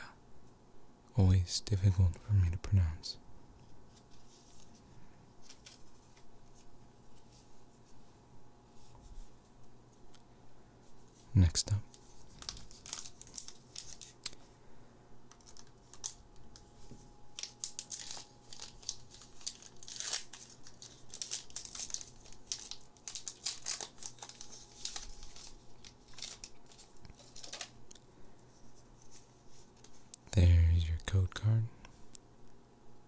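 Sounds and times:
foil wrapper crinkling and tearing: 5.4 - 6.3, 12.0 - 14.4, 15.3 - 28.0.

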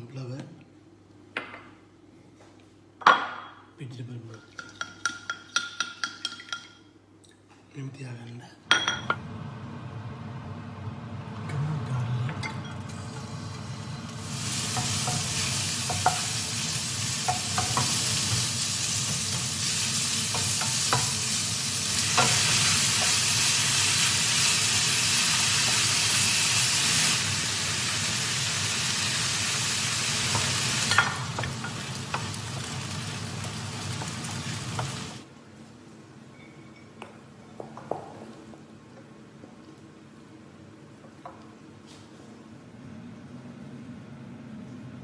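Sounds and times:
vegetables sizzling in a frying pan: 12.7 - 35.3.

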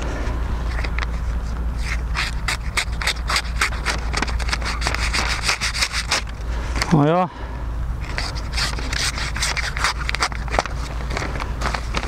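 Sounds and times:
knife blade slicing paper: 1.8 - 6.3, 8.1 - 10.7.

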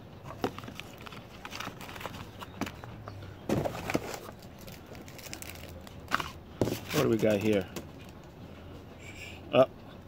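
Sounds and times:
items rustling in cardboard box: 0.2 - 8.2.

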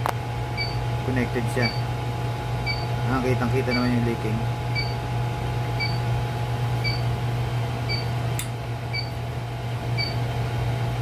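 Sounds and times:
low machinery hum: 0.0 - 11.0
short electronic beeps: 4.8 - 5.0.

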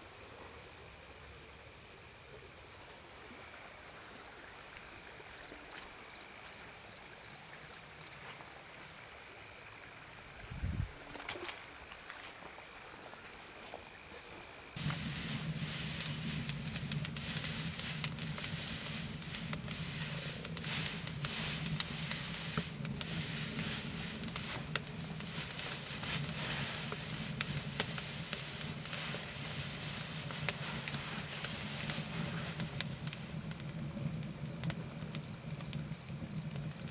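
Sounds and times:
dry straw rustling: 14.8 - 33.6
fire crackling and popping: 14.8 - 36.9.

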